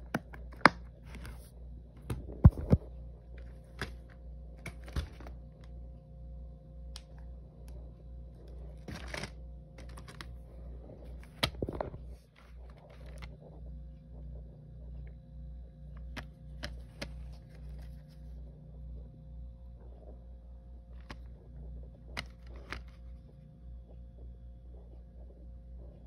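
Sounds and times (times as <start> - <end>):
steady low hum: 0.0 - 26.0
plastic cases clicking and knocking: 3.4 - 5.7, 8.7 - 10.4, 11.1 - 13.4, 16.0 - 18.0, 22.0 - 23.1.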